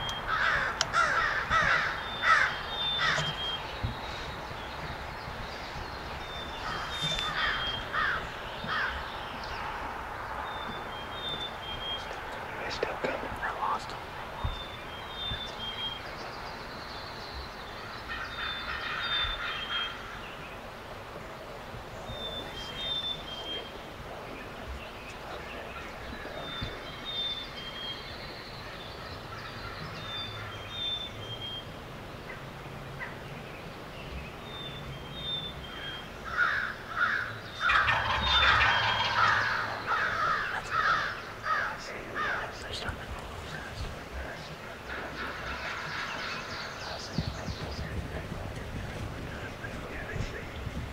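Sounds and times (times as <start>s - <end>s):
turkey gobbling: 37.1s - 42.9s, 44.8s - 47.4s.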